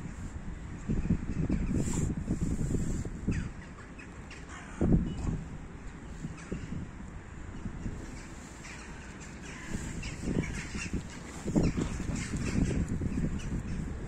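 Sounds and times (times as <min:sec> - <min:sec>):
crows cawing: 0:04.4 - 0:04.8
rustling and bumping on microphone: 0:07.8 - 0:13.9.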